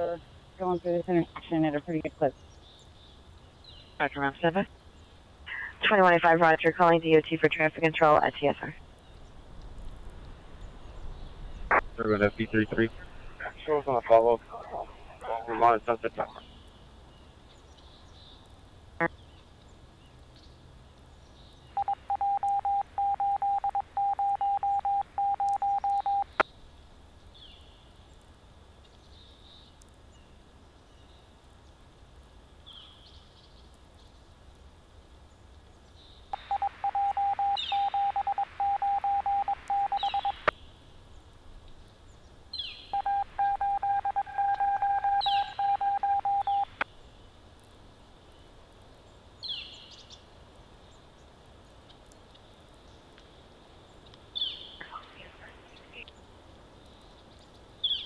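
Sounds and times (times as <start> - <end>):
radio static hiss: 5.5 - 8.9, 11.6 - 16.5, 36.4 - 40.6, 43.0 - 46.9, 54.8 - 56.2
radio tone beeping: 21.8 - 26.4, 36.4 - 40.5, 43.0 - 46.8.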